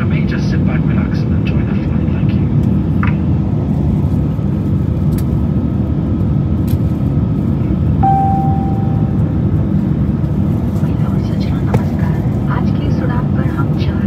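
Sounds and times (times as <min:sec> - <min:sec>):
aircraft cabin roar: 0:00.0 - 0:14.0
steady tone: 0:08.0 - 0:09.6.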